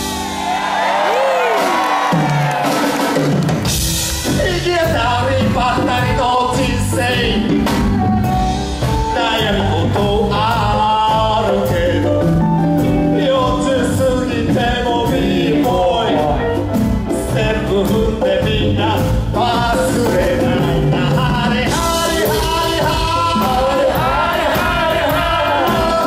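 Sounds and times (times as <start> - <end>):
congas: 0.0 - 26.0
live band playing: 0.0 - 26.0
man singing into microphone: 4.3 - 7.7, 9.1 - 26.0.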